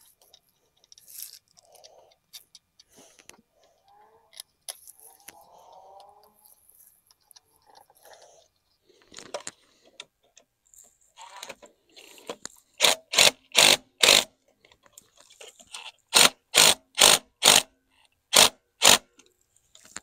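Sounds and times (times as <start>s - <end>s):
electric ratchet bursts: 12.8s - 14.3s, 16.1s - 17.7s, 18.3s - 19.0s.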